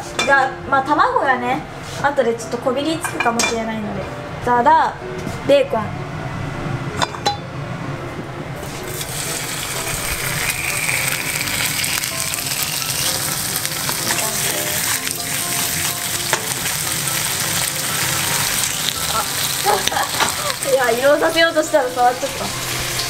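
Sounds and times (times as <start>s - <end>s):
bacon sizzling in frying pan: 8.8s - 23.0s.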